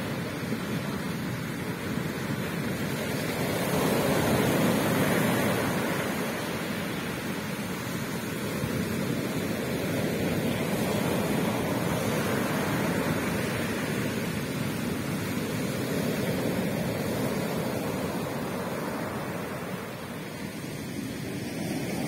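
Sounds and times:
waves breaking on shore: 0.0s - 22.0s.

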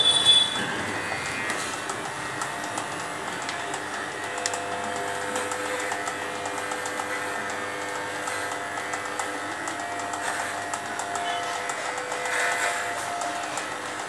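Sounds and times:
blade crackling through fur: 0.0s - 14.0s
electric clippers buzzing: 0.0s - 14.0s.

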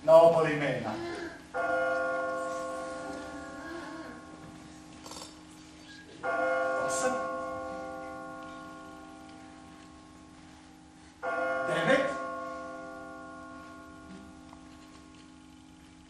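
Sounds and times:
clock bell striking: 1.5s - 5.1s, 6.1s - 14.8s.

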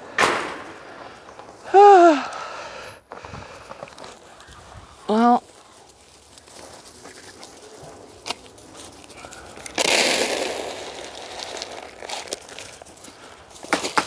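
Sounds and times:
pellets rattling into a bowl: 9.0s - 13.0s.

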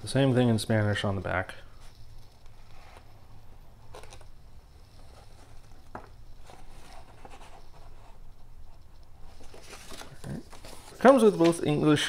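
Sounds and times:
paper rustling and crackling: 3.9s - 4.3s, 5.0s - 12.0s.

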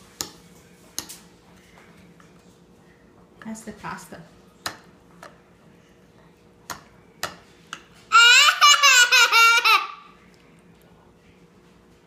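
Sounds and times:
child laughing: 8.1s - 10.1s.

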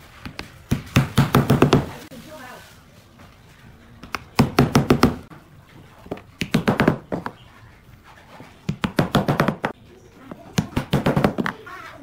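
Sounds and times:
hammer tapping wooden plugs: 6.1s - 7.3s, 8.7s - 9.8s, 10.5s - 11.6s.

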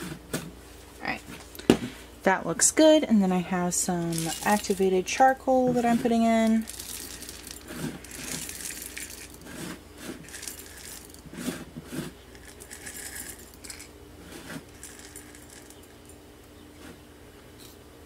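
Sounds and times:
charcoal granules pouring into glass jar: 4.0s - 4.9s, 6.2s - 16.0s.

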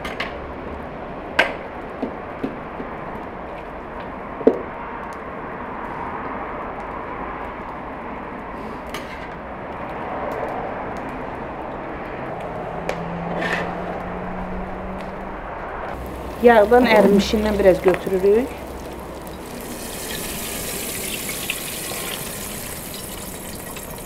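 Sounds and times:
fat sizzling and bubbling: 16.0s - 24.0s.

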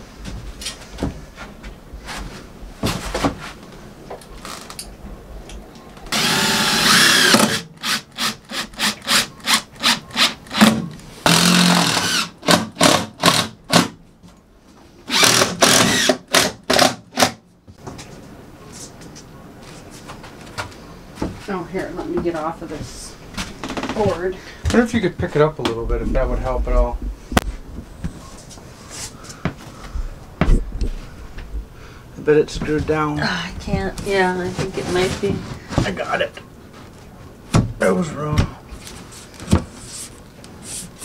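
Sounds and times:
cordless drill boring into wood: 6.1s - 10.7s, 11.3s - 13.6s, 15.1s - 17.3s.

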